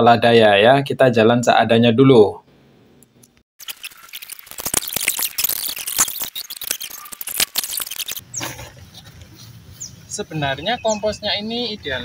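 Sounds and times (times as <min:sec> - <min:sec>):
high downward chirps: 0:04.4 - 0:08.5.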